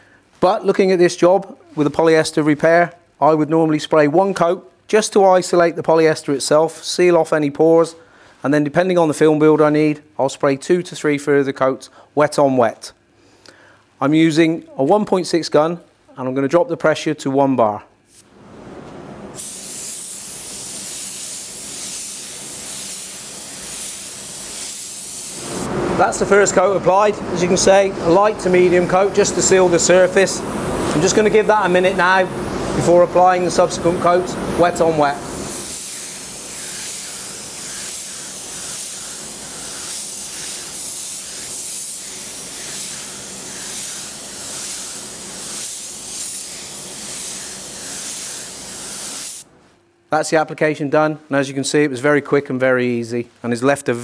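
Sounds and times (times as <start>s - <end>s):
paint spray gun air hiss: 19.3s - 26.4s, 27.4s - 49.5s.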